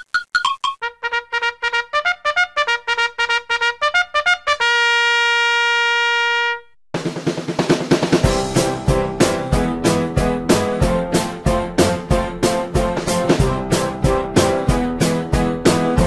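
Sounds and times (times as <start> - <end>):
full band with drums: 7.0 - 9.0.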